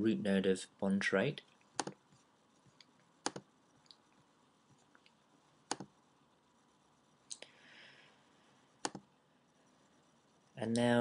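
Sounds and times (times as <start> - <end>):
computer mouse clicks: 1.8 - 2.0, 2.8 - 4.0, 5.0 - 6.0, 8.8 - 9.1.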